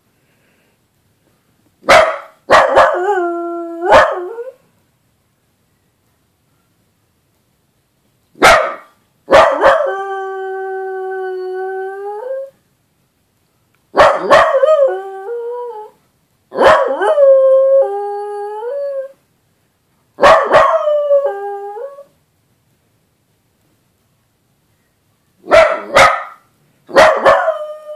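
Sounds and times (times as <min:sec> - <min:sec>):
dog barking: 0:01.8 - 0:03.0, 0:03.9 - 0:04.2, 0:08.4 - 0:09.9, 0:14.0 - 0:14.6, 0:16.6 - 0:17.0, 0:20.2 - 0:20.8, 0:25.5 - 0:27.6.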